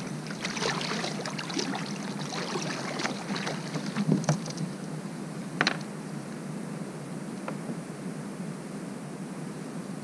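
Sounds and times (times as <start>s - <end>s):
shallow water sloshing and splashing: 0.0s - 4.8s.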